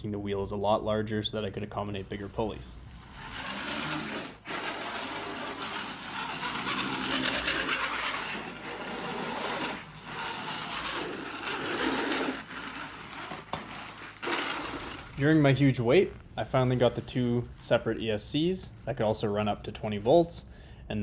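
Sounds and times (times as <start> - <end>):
motorized cart grinding whirr: 2.2 - 15.4.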